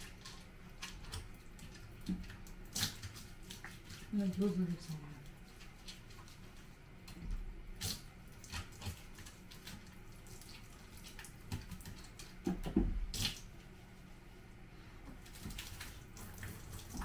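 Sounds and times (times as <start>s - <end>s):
water splashing and dripping: 7.8s - 13.5s, 15.2s - 17.0s.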